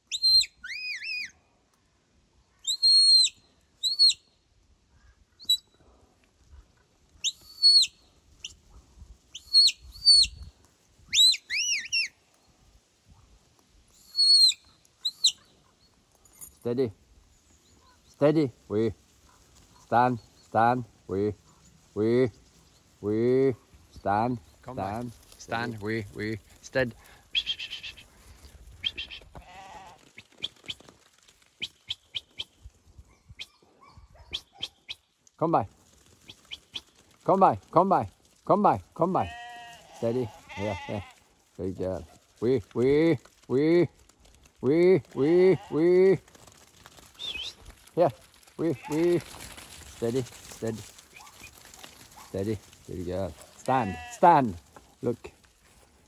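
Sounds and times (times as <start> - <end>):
sheep bleating: 29.3 - 30.0, 39.0 - 41.2, 45.1 - 46.1, 48.6 - 49.4, 53.6 - 54.6.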